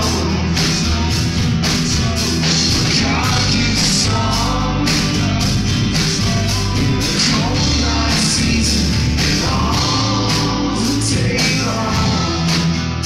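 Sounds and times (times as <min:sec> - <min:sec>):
bass guitar: 0:00.0 - 0:13.0
drum beat with cymbals: 0:00.0 - 0:13.0
strummed guitars: 0:00.0 - 0:13.0.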